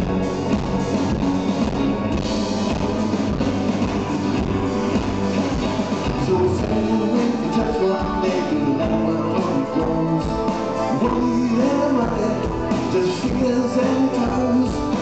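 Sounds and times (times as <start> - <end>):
bass guitar: 0.0 - 15.0
drums: 0.0 - 15.0
electric guitar: 0.0 - 15.0
keyboards: 0.0 - 15.0.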